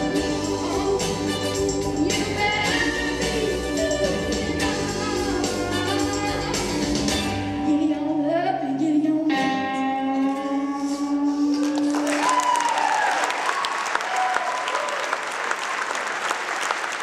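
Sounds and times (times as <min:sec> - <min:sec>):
woman singing with accompaniment: 0:00.0 - 0:12.6
audience applause: 0:11.8 - 0:17.0.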